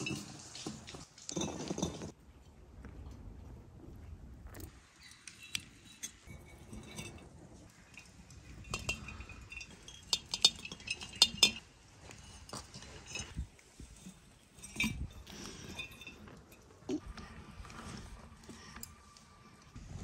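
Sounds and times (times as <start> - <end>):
glass jars clinking: 0.0 - 2.2, 5.1 - 13.4, 14.0 - 17.0.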